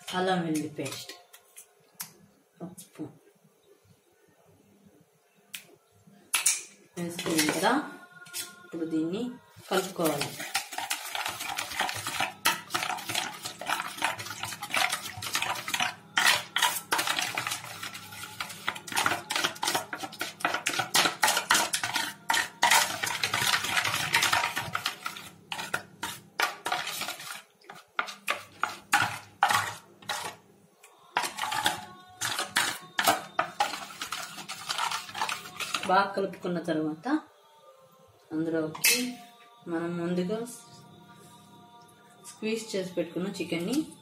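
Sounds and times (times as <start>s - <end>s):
hand mixing wet marinade: 9.6s - 30.4s, 31.1s - 36.1s
knocks and scrapes on steel bowl: 9.8s - 30.4s, 31.1s - 36.0s.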